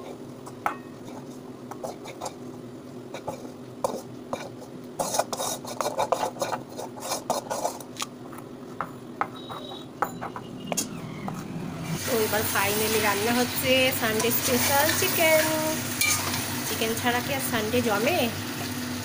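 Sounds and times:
metal spoon scraping a wok: 13.5 - 16.5.

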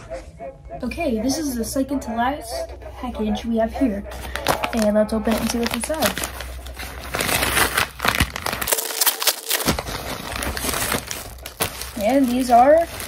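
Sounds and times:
paper bag crinkling: 4.2 - 13.0.

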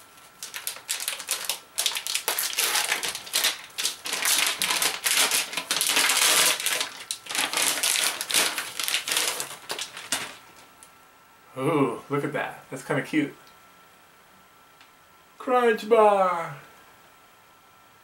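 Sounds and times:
wrapper crinkling and tearing: 0.2 - 10.7.

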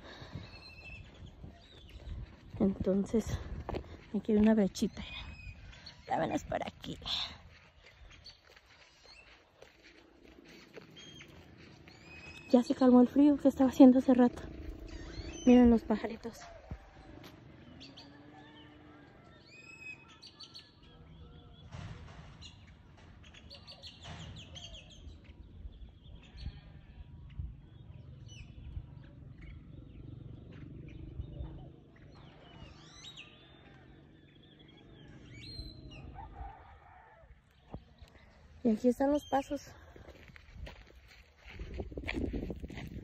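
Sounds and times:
small birds chirping: 0.0 - 18.2, 22.4 - 43.0
low background rumble: 10.1 - 17.9.

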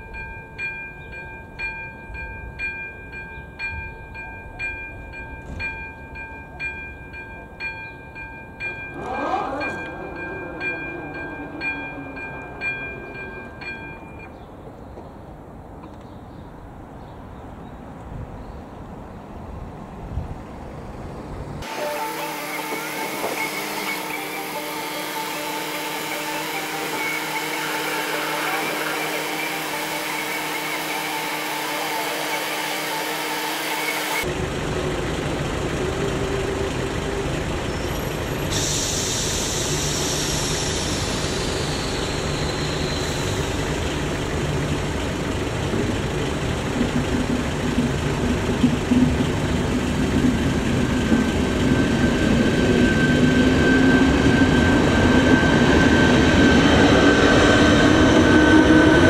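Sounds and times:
electric train approaching: 0.0 - 18.0, 18.6 - 59.0
high whine of train drive: 0.0 - 59.0
sped-up whirr of tones: 21.6 - 34.2.

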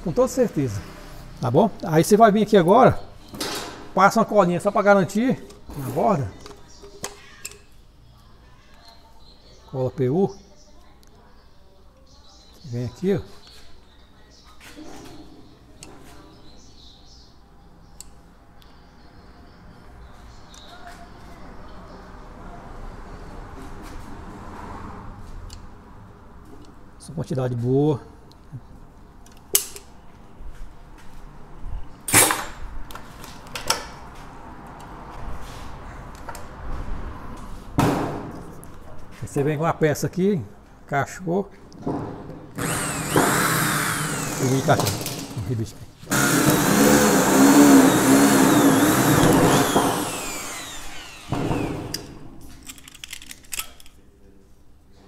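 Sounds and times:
electric drill whining: 42.6 - 45.4, 46.1 - 52.1
tools clicking and clattering: 51.9 - 54.0.

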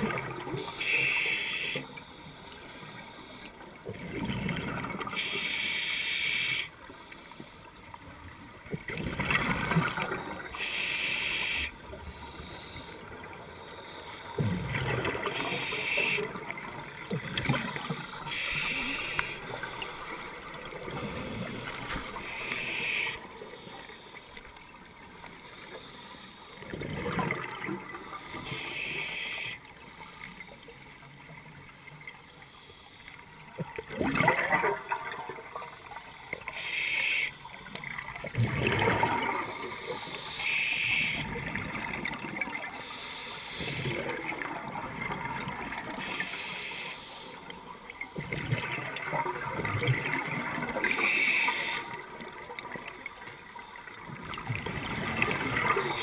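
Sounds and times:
regulator inhale hiss: 0.7 - 3.6, 5.1 - 7.8, 10.5 - 13.0, 15.3 - 16.3, 18.0 - 20.2, 20.8 - 24.5, 25.4 - 26.6, 28.2 - 30.3, 32.4 - 33.3, 36.5 - 37.6, 39.6 - 41.3, 42.8 - 43.9, 46.0 - 47.5, 50.9 - 52.0
exhaled bubbles underwater: 3.8 - 5.2, 8.7 - 10.7, 14.3 - 23.0, 26.6 - 28.4, 33.5 - 36.0, 37.7 - 40.0, 43.6 - 46.0, 48.0 - 51.2, 54.0 - 56.0.

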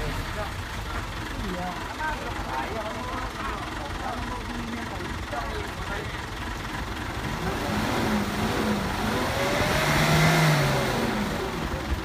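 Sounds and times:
pickup engine revving hard: 7.2 - 11.7.

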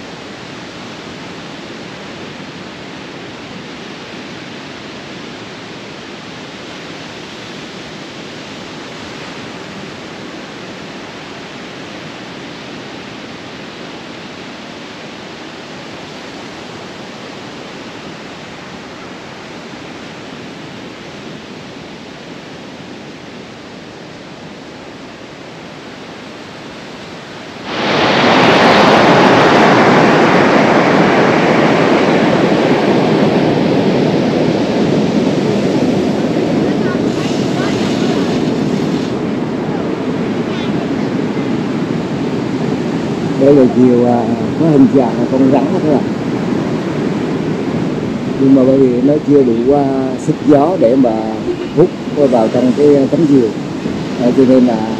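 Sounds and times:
sea wind and surf: 0.0 - 54.9
wind buffeting microphone: 17.8 - 54.9.

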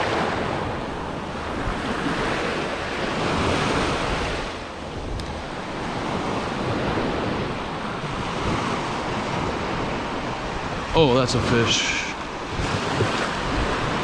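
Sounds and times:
surf waves washing on sand: 0.0 - 14.0
wind buffeting microphone: 0.0 - 14.0.

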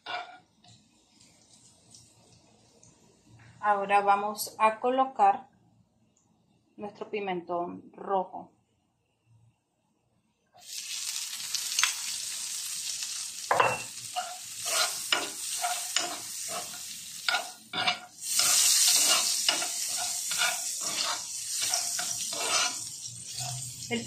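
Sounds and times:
metal spoon scraping a pan: 0.0 - 0.4, 13.6 - 24.0
vegetables sizzling in a frying pan: 0.0 - 2.8, 10.6 - 24.0.

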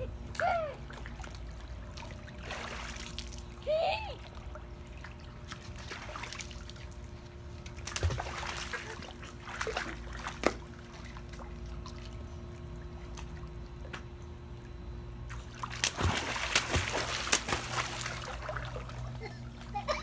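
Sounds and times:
steady low hum: 0.0 - 20.0
lapping water: 0.3 - 14.1
child splashing in pool: 0.4 - 13.4, 15.4 - 20.0.

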